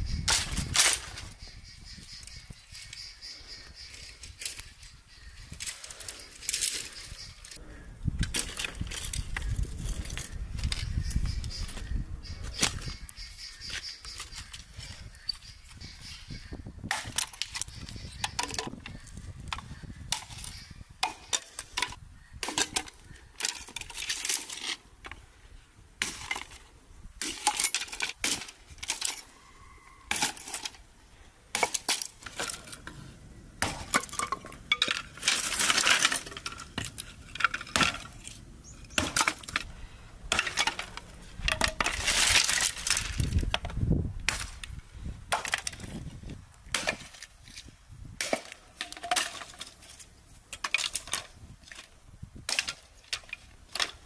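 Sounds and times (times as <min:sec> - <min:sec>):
axe chopping branches: 0:19.6 - 0:24.7, 0:26.0 - 0:26.6, 0:30.1 - 0:30.8, 0:31.5 - 0:46.1, 0:46.7 - 0:47.3, 0:48.2 - 0:54.0
brushwood being handled: 0:31.5 - 0:54.0.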